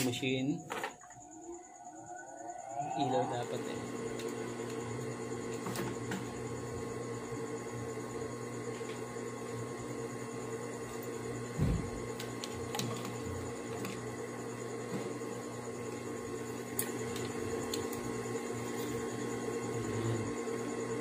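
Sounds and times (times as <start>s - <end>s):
electric motor hum with whine: 0.0s - 21.0s
short thump: 11.6s - 12.0s.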